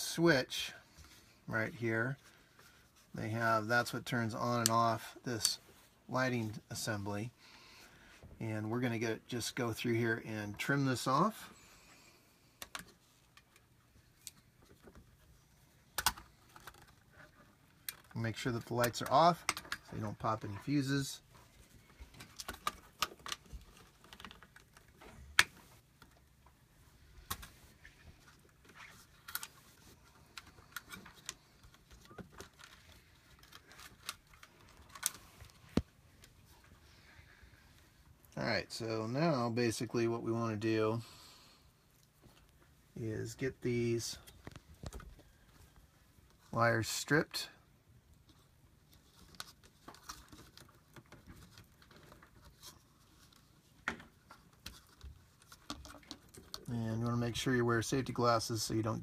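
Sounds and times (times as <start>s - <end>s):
wire strippers clicking and snipping: 16.0s - 16.9s.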